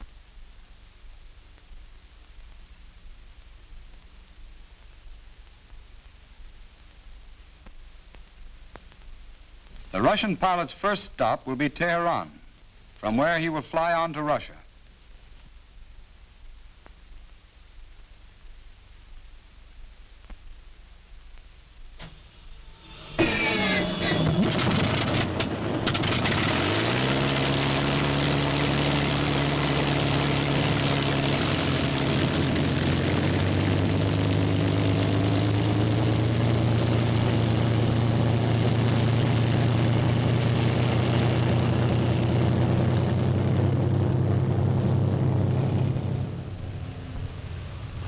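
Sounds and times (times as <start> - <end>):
aircraft engine running: 22.6 - 48.0.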